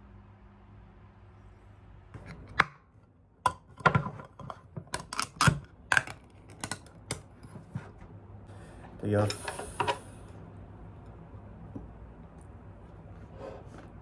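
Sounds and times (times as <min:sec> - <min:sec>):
can opener clicking and crunching: 0:03.5 - 0:07.3.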